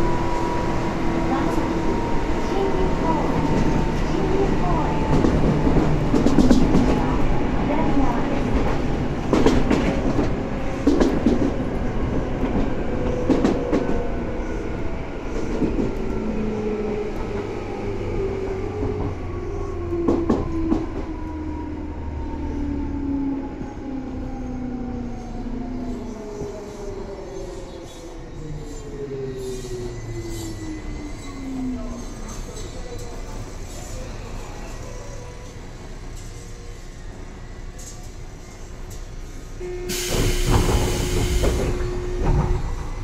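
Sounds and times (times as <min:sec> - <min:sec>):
train motor whine: 0:39.6 - 0:43.0.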